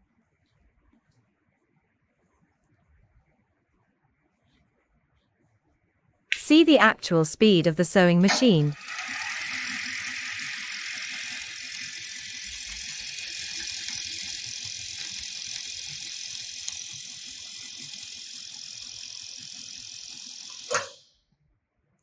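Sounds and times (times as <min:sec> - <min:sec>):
sewing machine whirring: 0:08.2 - 0:21.0.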